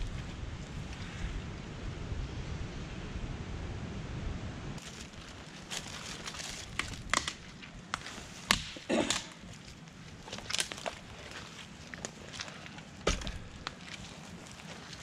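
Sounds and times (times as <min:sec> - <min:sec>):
wind rumble on microphone: 0:00.0 - 0:07.2
footsteps over sticks: 0:04.8 - 0:15.0
twigs snapping: 0:04.8 - 0:15.0.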